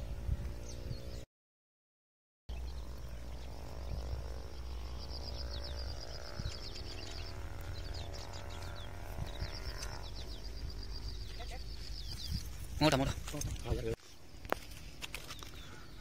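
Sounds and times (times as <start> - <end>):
steady low rumble: 2.5 - 13.9.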